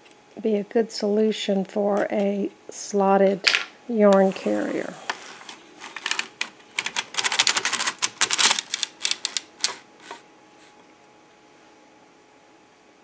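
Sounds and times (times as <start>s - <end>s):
sock machine needles clattering: 5.4s - 10.2s.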